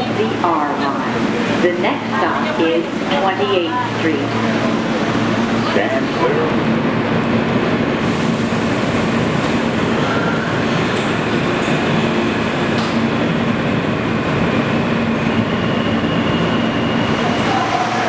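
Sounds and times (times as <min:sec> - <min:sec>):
subway wheels rumbling on rails: 0:00.0 - 0:18.0.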